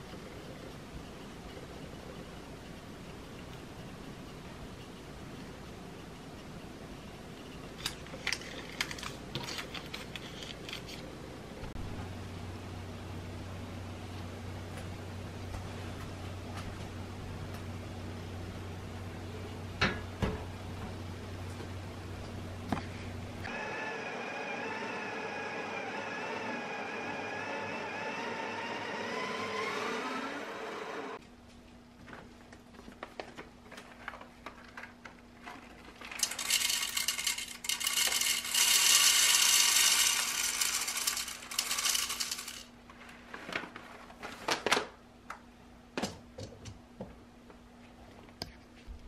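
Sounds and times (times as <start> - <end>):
espresso machine pump hum: 23.4 - 31.2
coffee beans pouring into hopper: 36.2 - 42.7.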